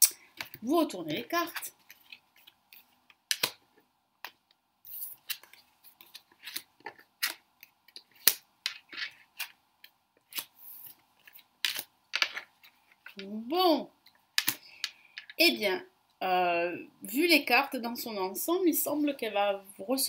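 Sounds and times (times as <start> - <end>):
cards clicking on wooden table: 3.2 - 3.6, 11.2 - 13.2, 14.4 - 15.4.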